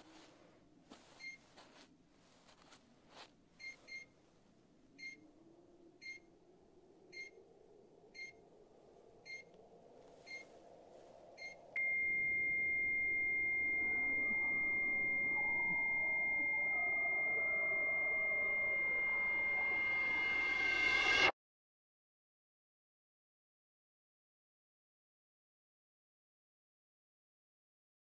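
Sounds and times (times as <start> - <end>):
faint rustling clicks: 0.0 - 4.6
low drone: 4.5 - 21.3
scanner beeping: 11.4 - 21.3.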